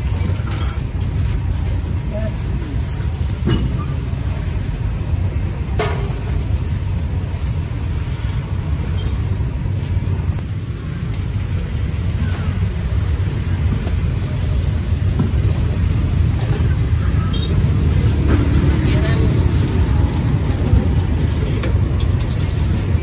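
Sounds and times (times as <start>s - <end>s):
street traffic rumble: 0.0s - 23.0s.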